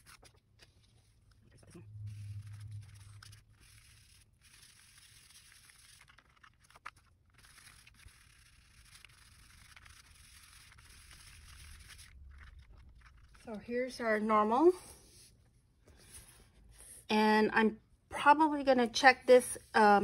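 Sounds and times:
sponge rustling and scraping on paper: 0:00.0 - 0:13.7, 0:14.9 - 0:16.7
paper ticks: 0:02.9 - 0:13.4.

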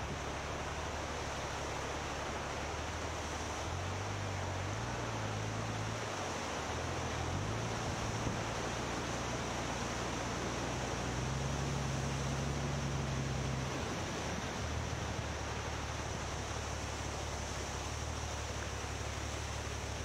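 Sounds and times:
floodwater rushing over bridge: 0:00.0 - 0:20.0
motorcycle engine humming: 0:00.0 - 0:20.0.

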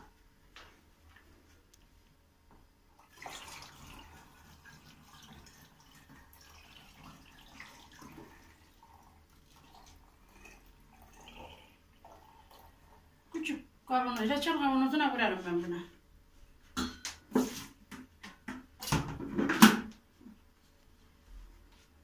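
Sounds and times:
liquid trickling through funnel: 0:02.9 - 0:13.2.

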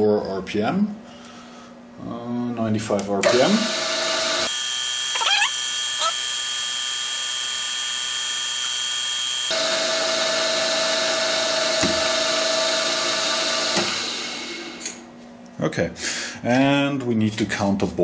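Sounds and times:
mill-drill running: 0:03.2 - 0:15.0.

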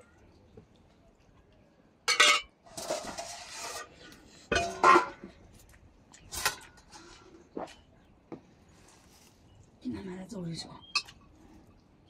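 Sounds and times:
scraping and rasping: 0:02.7 - 0:04.3.

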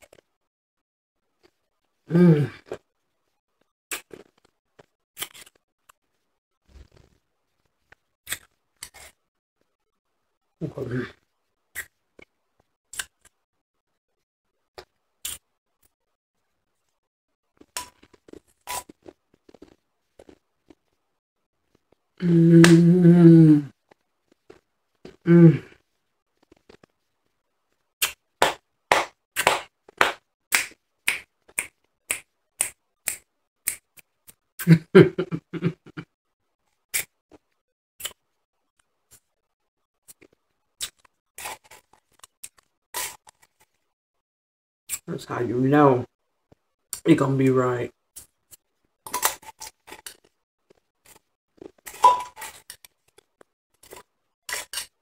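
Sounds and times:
ice being chewed: 0:17.5 - 0:21.0, 0:48.2 - 0:55.0.

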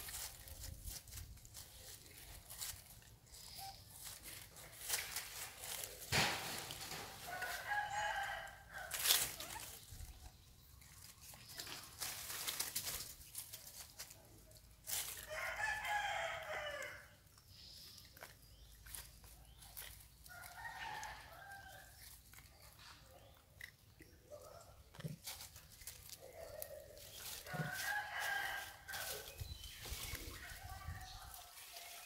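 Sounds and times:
rooster crowing: 0:07.2 - 0:09.0, 0:15.3 - 0:17.1, 0:27.6 - 0:29.3.

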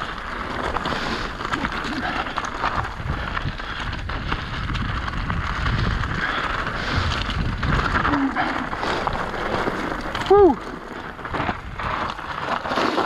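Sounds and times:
bike clattering: 0:00.0 - 0:13.0
tyres crunching over gravel: 0:00.0 - 0:13.0
wind on microphone: 0:02.6 - 0:12.4.

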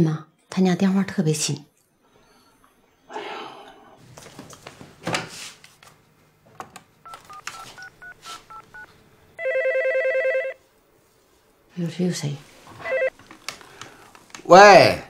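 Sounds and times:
telephone keypad beeps: 0:07.1 - 0:10.6.

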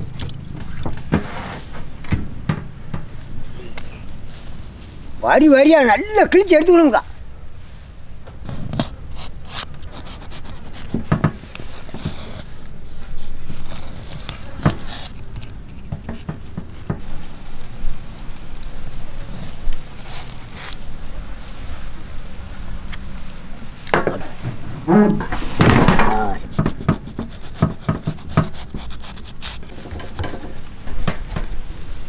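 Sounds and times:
knife scraping fish: 0:08.5 - 0:12.5, 0:13.5 - 0:16.9, 0:19.9 - 0:20.8, 0:26.3 - 0:30.6.

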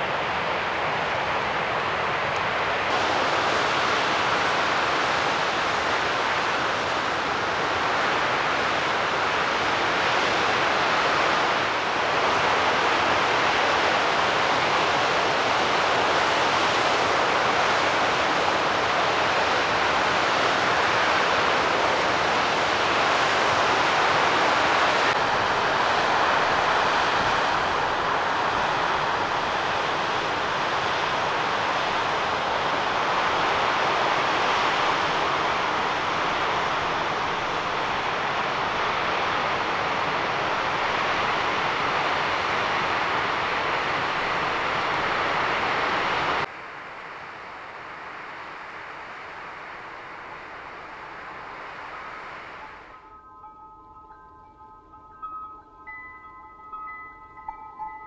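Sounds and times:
waterfall rushing: 0:02.4 - 0:30.2.

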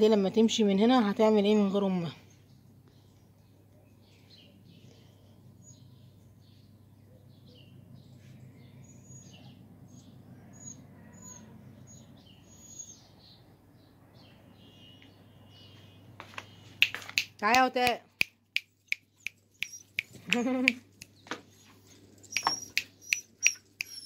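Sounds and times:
small birds chirping: 0:00.1 - 0:24.0.

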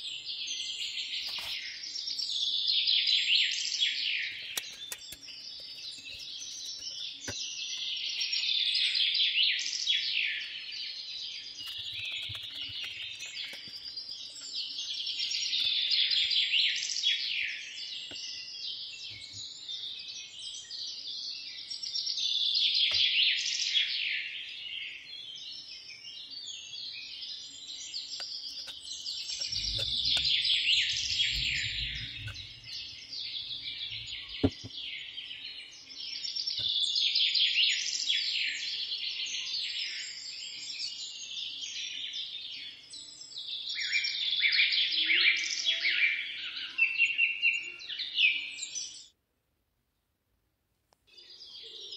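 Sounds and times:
small birds chirping in chorus: 0:00.0 - 0:49.2, 0:51.0 - 0:51.9.

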